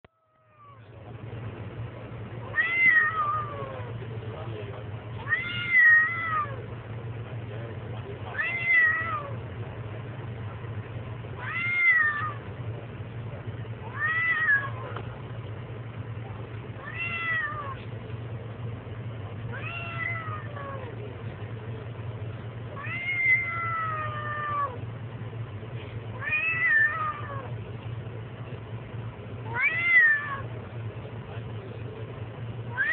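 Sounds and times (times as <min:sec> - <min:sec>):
steady low hum: 0:00.0 - 0:32.9
kitten meowing: 0:02.5 - 0:03.9, 0:05.2 - 0:06.6, 0:08.3 - 0:09.4, 0:11.4 - 0:12.4, 0:13.9 - 0:14.9, 0:16.8 - 0:17.8, 0:19.6 - 0:20.9, 0:22.8 - 0:24.8, 0:26.2 - 0:27.5, 0:29.5 - 0:30.5.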